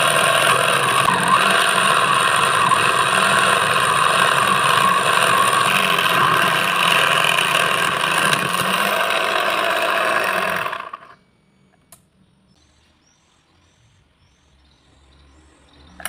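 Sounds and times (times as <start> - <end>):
cutter grinding metal: 0.0 - 11.2
motor whine: 0.0 - 11.9.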